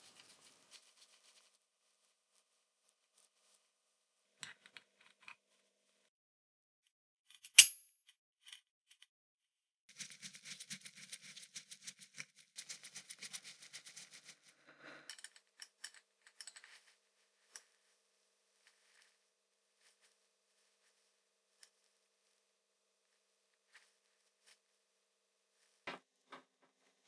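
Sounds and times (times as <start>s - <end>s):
sharp metal clink: 7.5s - 7.8s.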